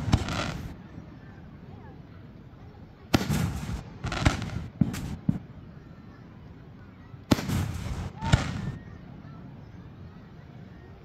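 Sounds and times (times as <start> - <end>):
fireworks bangs: 0.0 - 0.8, 3.1 - 5.5, 7.3 - 8.9
rumbling echo: 0.0 - 0.8, 3.2 - 5.4.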